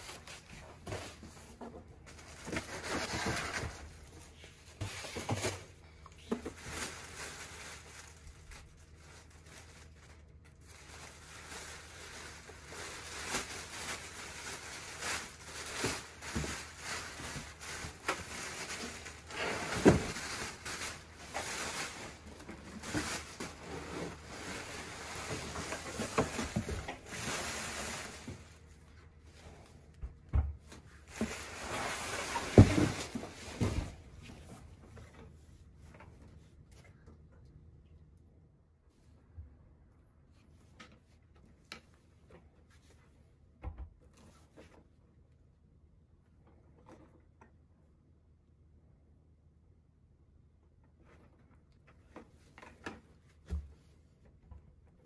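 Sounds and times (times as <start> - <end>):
plastic wrap rustling and crinkling: 0.0 - 29.7, 30.7 - 36.0.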